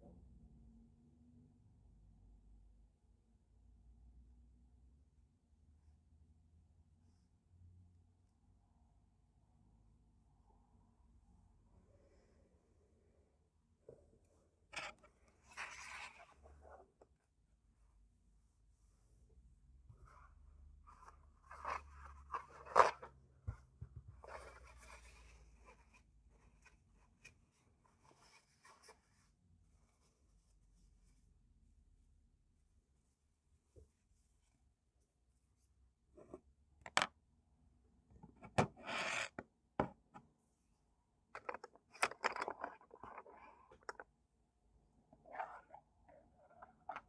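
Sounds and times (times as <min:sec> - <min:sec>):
objects rustling on a desk: 0:14.7 - 0:17.2, 0:19.9 - 0:30.5
art supplies knocking and clicking: 0:41.4 - 0:44.1.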